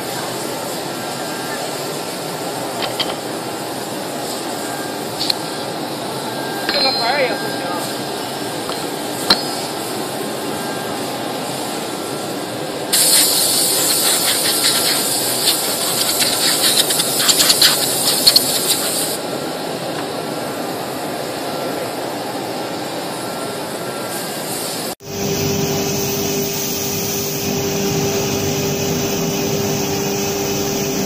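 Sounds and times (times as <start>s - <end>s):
compressed air hissing: 12.9s - 19.2s, 24.5s - 31.0s
router machine humming: 25.0s - 31.0s.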